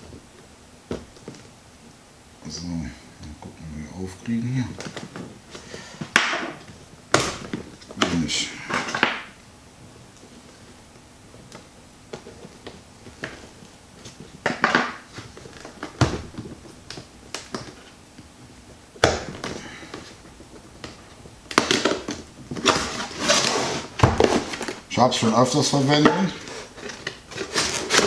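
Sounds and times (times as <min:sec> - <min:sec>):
cardboard rustling and sliding: 0:21.8 - 0:28.0.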